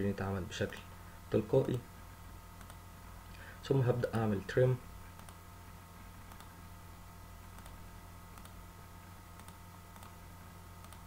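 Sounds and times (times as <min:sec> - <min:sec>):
low electrical hum: 0:00.0 - 0:11.0
faint computer mouse clicks: 0:02.6 - 0:02.8, 0:06.3 - 0:06.5, 0:07.6 - 0:07.8, 0:08.4 - 0:08.6, 0:09.4 - 0:10.2, 0:10.8 - 0:11.0.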